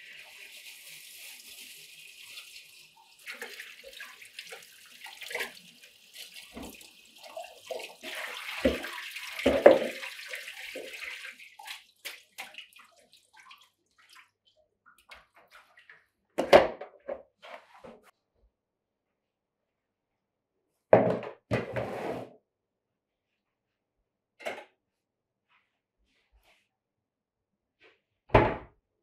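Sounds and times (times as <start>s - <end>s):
plastic colander knock: 9.4s - 10.0s, 21.0s - 21.4s.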